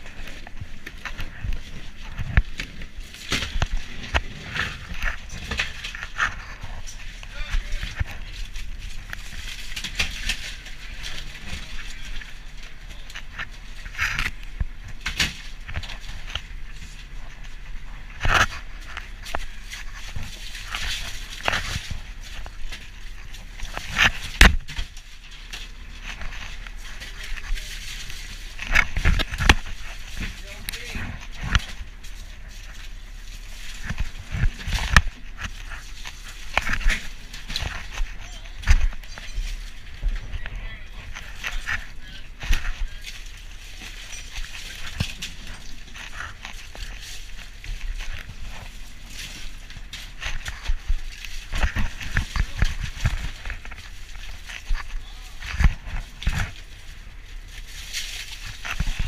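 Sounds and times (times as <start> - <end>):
crushed ice crunching and scraping: 0.0 - 59.0
steady low hum: 0.0 - 59.0.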